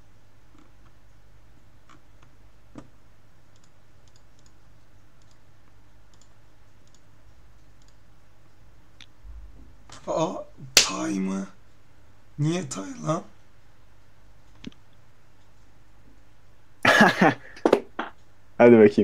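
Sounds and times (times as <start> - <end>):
low steady hum: 0.0 - 19.0
computer clicks: 3.5 - 8.1.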